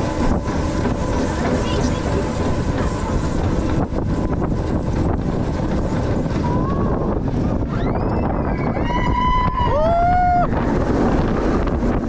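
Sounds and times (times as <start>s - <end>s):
roller coaster rumbling on track: 0.0s - 12.0s
wind buffeting microphone: 0.0s - 12.0s.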